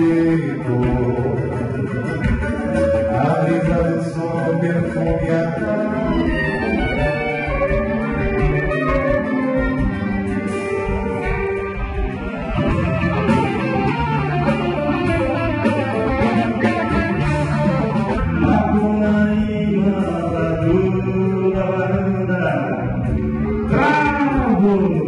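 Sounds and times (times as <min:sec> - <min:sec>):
man singing into microphone: 0:00.0 - 0:07.6, 0:18.3 - 0:25.0
live band with guitar and drums: 0:00.0 - 0:25.0.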